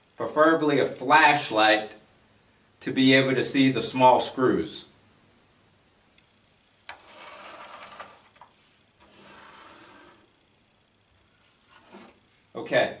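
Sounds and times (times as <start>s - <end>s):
rubbing and scraping on wood: 6.9s - 8.3s, 9.0s - 10.3s, 11.4s - 12.2s.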